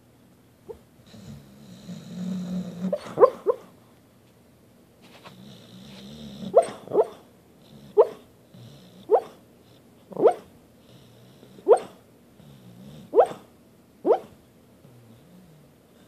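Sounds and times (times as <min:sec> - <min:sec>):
dog growling: 0:00.7 - 0:03.6, 0:05.3 - 0:09.4
dog yipping barks: 0:02.9 - 0:03.7, 0:06.5 - 0:07.2, 0:08.0 - 0:08.2, 0:09.1 - 0:09.4, 0:10.2 - 0:10.5, 0:11.7 - 0:12.0, 0:13.1 - 0:13.4, 0:14.0 - 0:14.4.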